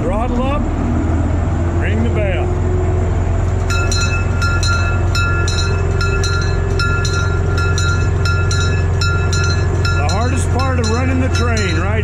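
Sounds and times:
locomotive engine running: 0.0s - 12.0s
locomotive bell clanging: 3.6s - 12.0s.

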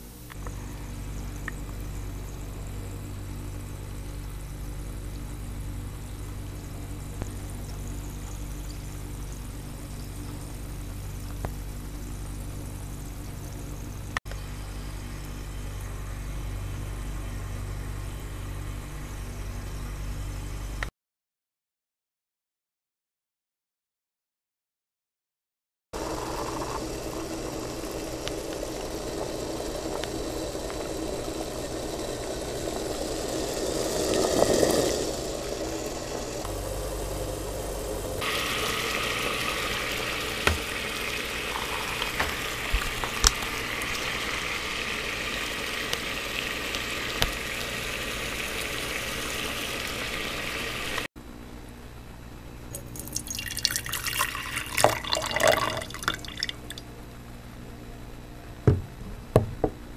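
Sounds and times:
liquid boiling in a pot: 0.2s - 19.4s, 26.0s - 51.1s, 52.8s - 56.8s
liquid dripping into glass jar: 52.7s - 56.8s.

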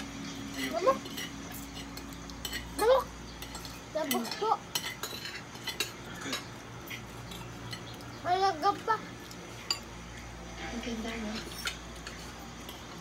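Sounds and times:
cutlery clinking on plates: 0.5s - 7.9s.

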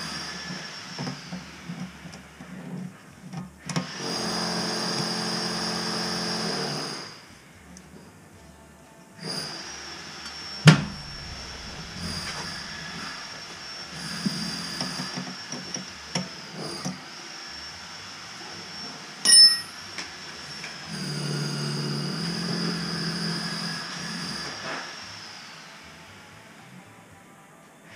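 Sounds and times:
sharp knock: 10.7s - 13.4s
wrench clinking on concrete: 19.3s - 19.8s.

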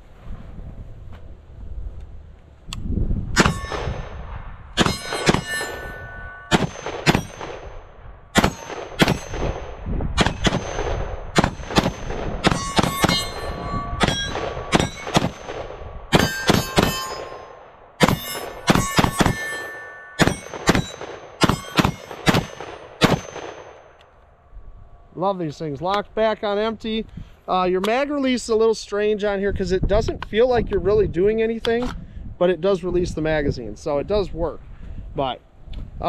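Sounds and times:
rifle gunshots: 4.8s - 5.6s, 6.5s - 19.6s, 20.2s - 23.8s
brief ringing tone: 4.9s - 6.6s, 12.6s - 15.1s, 18.2s - 22.0s.

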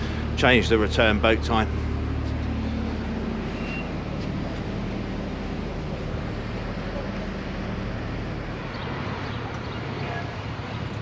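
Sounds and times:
ferry machinery humming: 0.0s - 11.0s.

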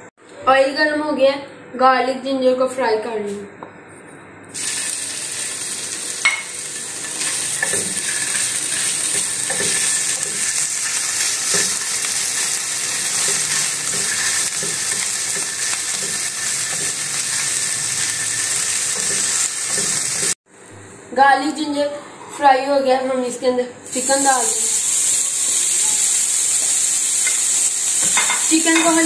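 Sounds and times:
paste sizzling in frying pan: 4.6s - 20.4s, 23.9s - 29.0s.

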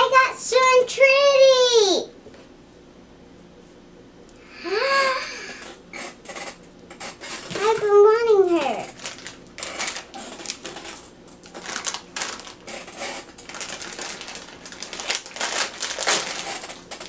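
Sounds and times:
plastic packaging crinkling: 7.3s - 17.0s.

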